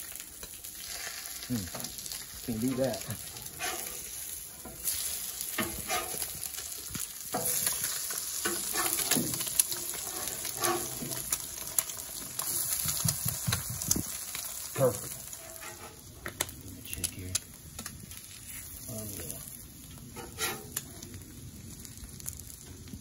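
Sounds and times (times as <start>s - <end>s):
eggs sizzling on a griddle: 0.0s - 23.0s
metal spatula scraping griddle: 2.6s - 6.6s, 7.3s - 12.9s, 14.8s - 16.1s, 20.0s - 20.8s.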